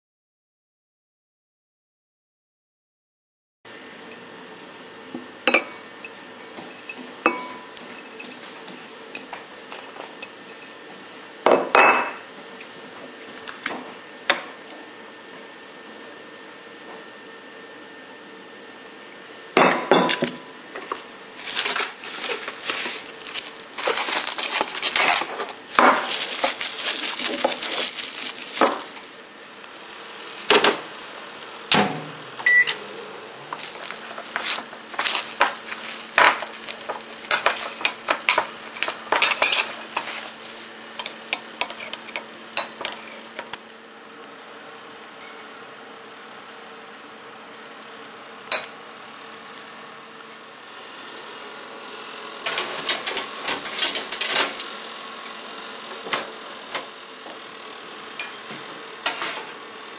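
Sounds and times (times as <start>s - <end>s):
microwave humming: 3.7s - 59.9s
glass bowl and utensils clinking: 6.8s - 8.4s, 37.2s - 40.2s, 58.1s - 58.4s
plastic wrap crinkling: 20.8s - 31.1s, 33.4s - 40.8s
microwave beep: 32.4s - 32.8s.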